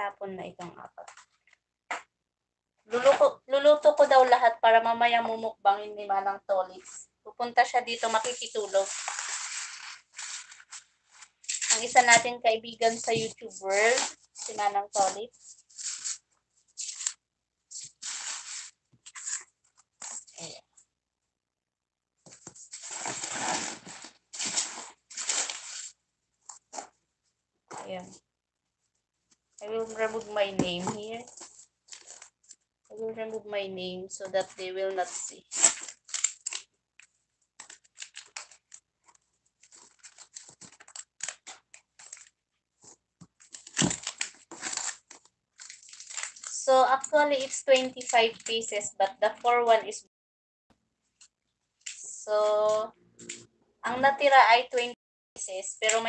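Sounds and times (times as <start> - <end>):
plastic wrap and cardboard crinkling: 7.6 - 20.6, 22.3 - 27.0, 29.3 - 32.7, 34.3 - 48.8.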